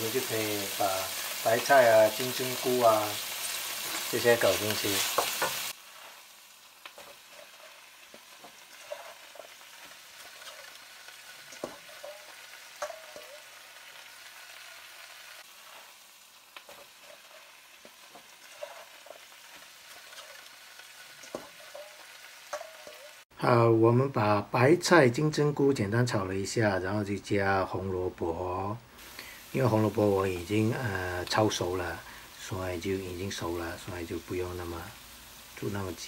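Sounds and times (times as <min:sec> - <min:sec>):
vegetables sizzling in a pan: 0:00.0 - 0:23.6, 0:26.1 - 0:36.0
spatula tapping and scraping pan: 0:04.7 - 0:05.7, 0:11.5 - 0:13.5, 0:21.2 - 0:23.1.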